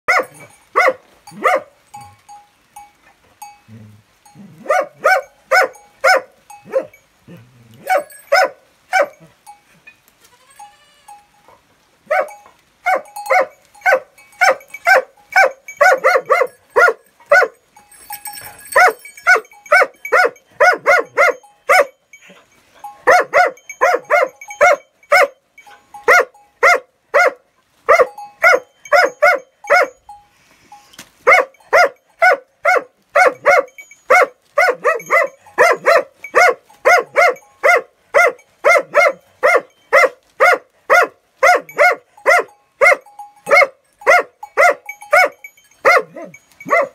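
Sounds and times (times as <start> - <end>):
dog barking: 0.1 - 1.8, 4.6 - 7.0, 7.8 - 9.3, 12.1 - 17.6, 18.5 - 22.0, 23.0 - 25.4, 26.0 - 30.0, 31.2 - 46.9.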